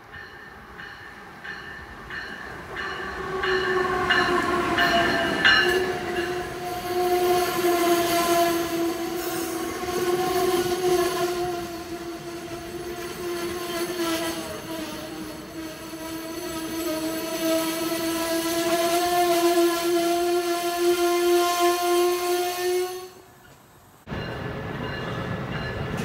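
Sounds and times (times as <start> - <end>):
electric locomotive passing: 0.0 - 26.0.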